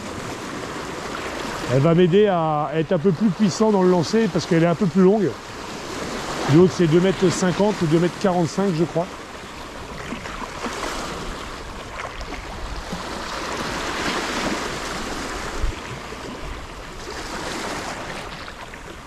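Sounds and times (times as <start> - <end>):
sea surf washing against rocks: 0.0 - 19.0
wind buffeting microphone: 9.8 - 18.1.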